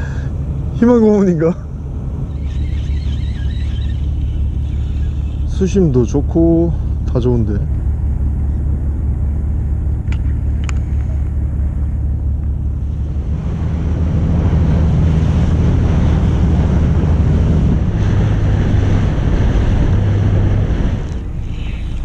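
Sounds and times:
boat engine running: 0:00.0 - 0:22.0
wind buffeting microphone: 0:00.0 - 0:22.0
water rushing past: 0:10.4 - 0:22.0.

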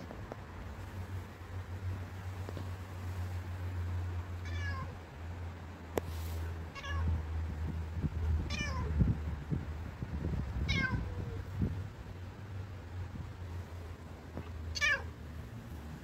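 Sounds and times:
cat meowing: 0:04.4 - 0:05.0, 0:06.7 - 0:07.2, 0:08.5 - 0:08.9, 0:10.6 - 0:11.4, 0:14.7 - 0:15.1.

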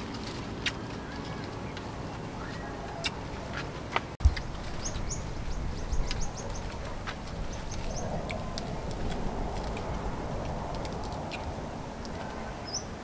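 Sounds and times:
small bird chirping: 0:04.2 - 0:08.2.

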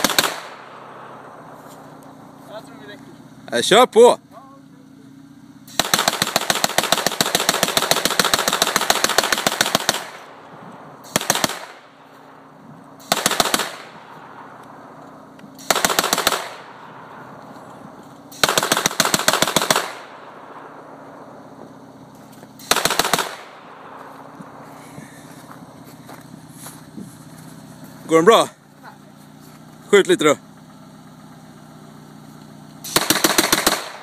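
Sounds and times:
machine gun firing bursts: 0:00.0 - 0:01.0, 0:05.7 - 0:10.4, 0:11.0 - 0:11.9, 0:13.0 - 0:14.1, 0:15.6 - 0:16.9, 0:18.3 - 0:20.3, 0:22.6 - 0:24.0, 0:32.8 - 0:34.0.

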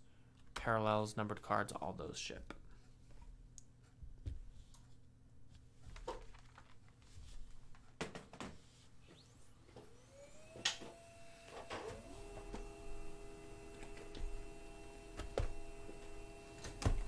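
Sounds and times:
printer motor whine: 0:09.1 - 0:17.0.

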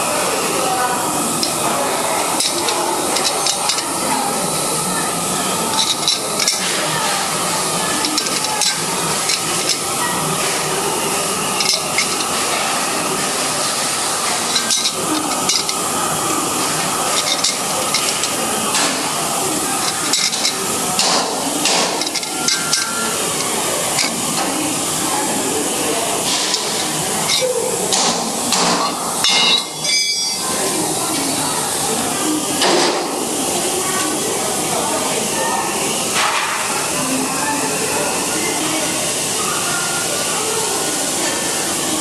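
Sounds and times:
metal wrench clinks and knocks: 0:05.7 - 0:06.6, 0:11.6 - 0:12.3, 0:14.5 - 0:15.8, 0:17.1 - 0:18.4, 0:19.8 - 0:20.6, 0:21.7 - 0:22.9.

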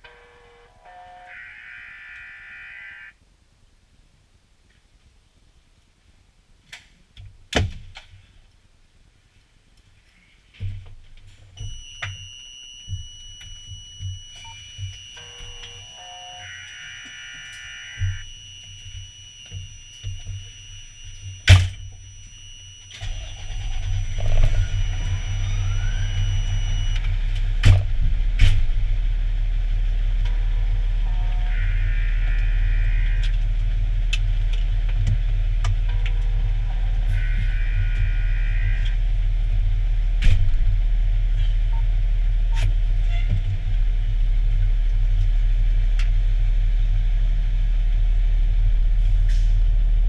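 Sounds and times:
steady high-pitched tone: 0:00.0 - 0:03.2, 0:11.6 - 0:33.6, 0:35.8 - 0:39.2
diesel engine running: 0:11.6 - 0:50.0
thuds and clicks: 0:26.0 - 0:28.8.

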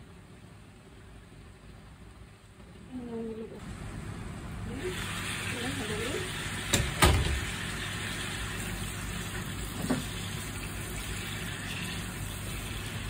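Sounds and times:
vegetables sizzling in pan: 0:04.6 - 0:13.0.

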